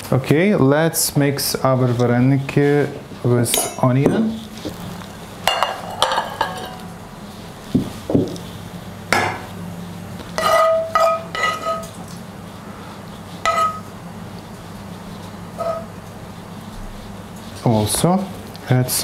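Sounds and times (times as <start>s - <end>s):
utensil clinking against dish: 5.4s - 6.8s, 13.5s - 13.9s.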